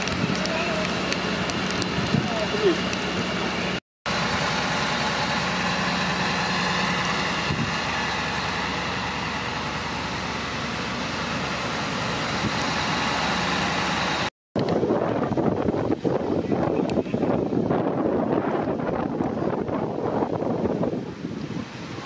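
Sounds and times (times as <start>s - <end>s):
diesel engine idling: 0.0s - 14.3s.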